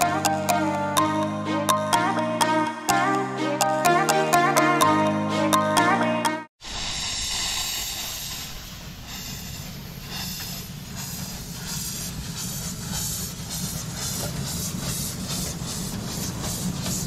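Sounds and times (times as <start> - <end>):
steam hissing: 6.6 - 17.0.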